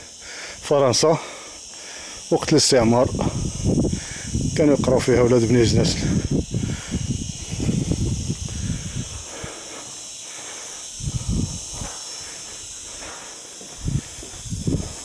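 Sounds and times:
wind blowing on microphone: 2.8s - 9.8s, 10.9s - 12.8s, 13.7s - 15.0s.

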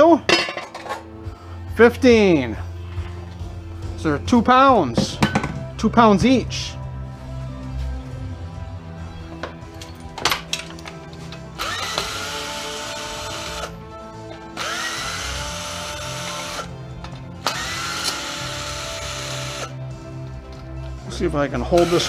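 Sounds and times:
cordless drill whining: 11.6s - 13.8s, 14.6s - 16.7s, 17.4s - 19.8s.

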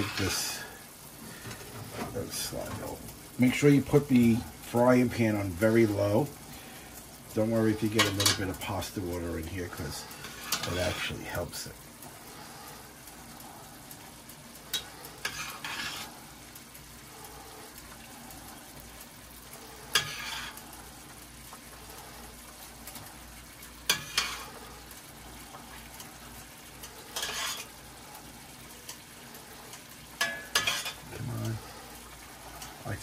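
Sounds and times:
pan sizzling: 0.0s - 33.0s
metal tongs clacking on pans: 7.8s - 11.1s, 14.6s - 16.1s, 19.9s - 20.7s, 23.6s - 27.8s, 29.6s - 31.6s.

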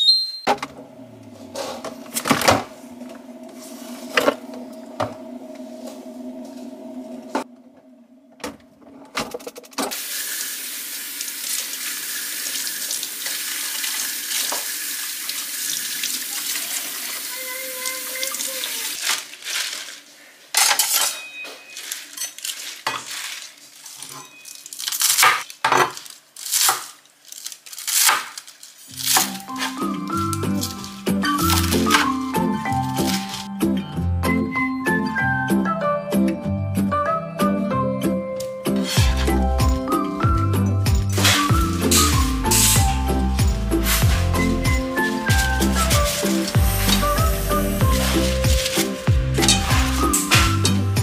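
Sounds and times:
tap water running into sink: 9.9s - 19.0s.

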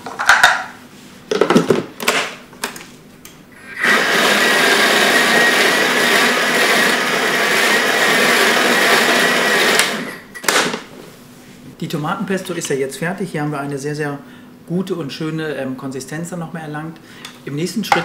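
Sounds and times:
blender whining: 3.6s - 10.3s.

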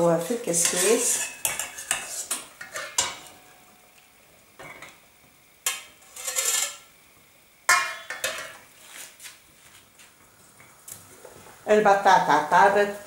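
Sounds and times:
steel cookware clinking: 0.5s - 3.4s, 5.6s - 6.9s, 7.7s - 8.6s
sharp metal clang: 7.7s - 8.6s.

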